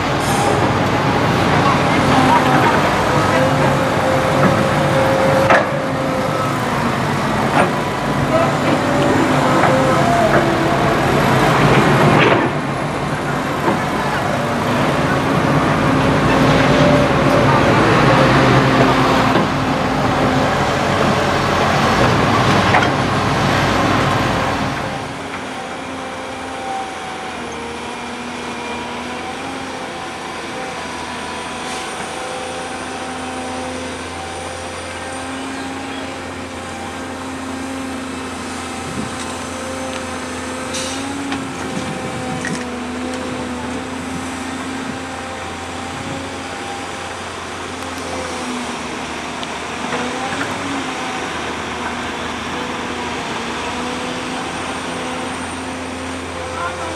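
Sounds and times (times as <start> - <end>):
excavator and dump trucks machinery: 0.0 - 56.9
excavator engine under load: 0.0 - 56.9.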